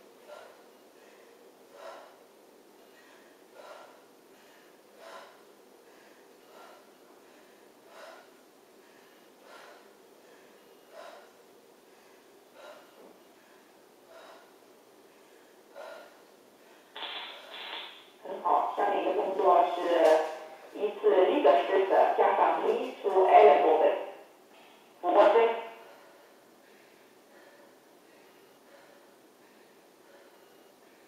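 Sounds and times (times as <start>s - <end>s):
woman breathing out forcefully: 0.2s - 17.6s.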